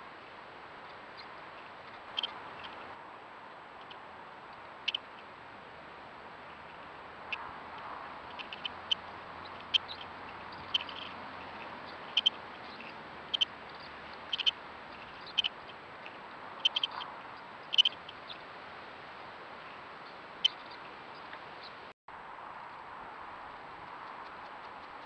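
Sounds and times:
steady hiss: 0:00.0 - 0:07.0.

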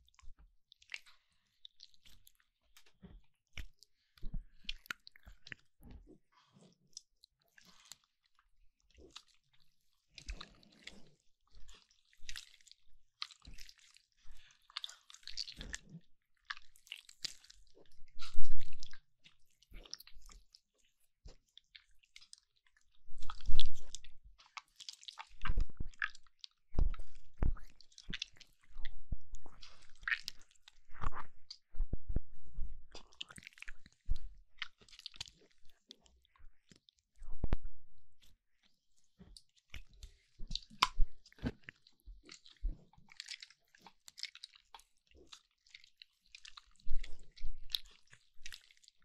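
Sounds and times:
slime squelching and popping: 0:23.1 - 0:35.8, 0:39.3 - 0:45.6.

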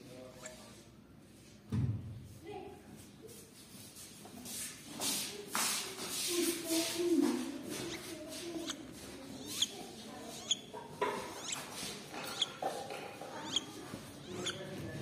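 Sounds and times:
owlets peeping: 0:07.7 - 0:12.6, 0:13.4 - 0:15.0.

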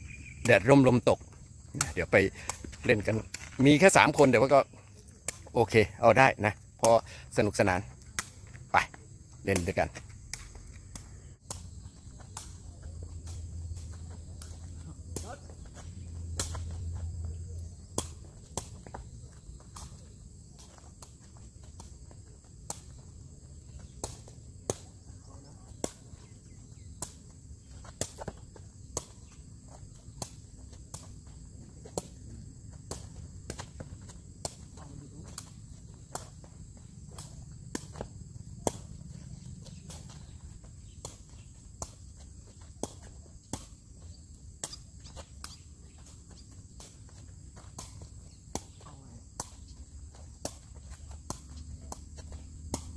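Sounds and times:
high insect drone: 0:00.0 - 0:52.9
ball being kicked pops: 0:09.5 - 0:11.7, 0:12.3 - 0:15.6, 0:16.3 - 0:16.8, 0:23.9 - 0:24.9, 0:32.8 - 0:36.4, 0:37.1 - 0:39.1, 0:41.0 - 0:42.0, 0:42.6 - 0:43.8, 0:47.6 - 0:49.8, 0:50.4 - 0:52.9.

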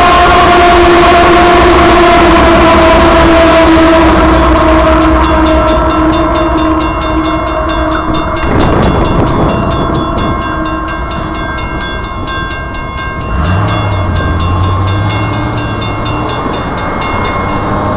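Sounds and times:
crossing warning bell ringing: 0:00.0 - 0:17.9
train noise: 0:00.0 - 0:17.9
steady tone: 0:01.4 - 0:17.9
low engine hum: 0:13.1 - 0:17.9.

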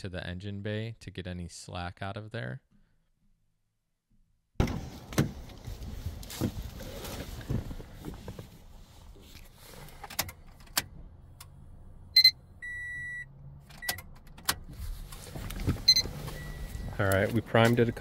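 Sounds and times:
steady beep: 0:12.2 - 0:13.3, 0:15.9 - 0:16.8.

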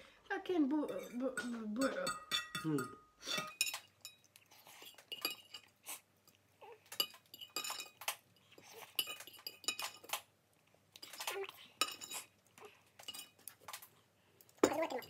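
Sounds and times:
cutlery clinking on a plate: 0:00.9 - 0:05.7, 0:06.3 - 0:10.3, 0:11.0 - 0:12.3, 0:13.0 - 0:13.8.

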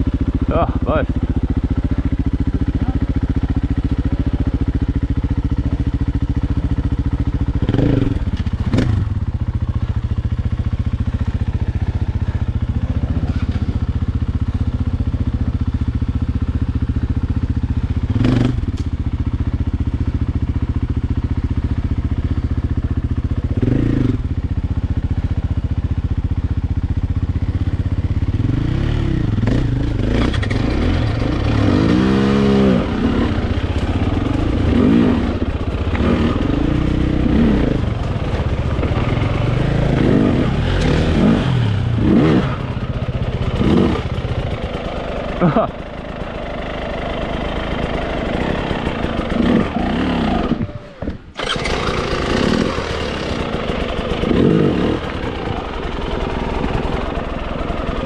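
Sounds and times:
dirt bike engine revving: 0:07.4 - 0:09.3, 0:18.1 - 0:18.7, 0:23.5 - 0:24.3, 0:28.3 - 0:58.0.

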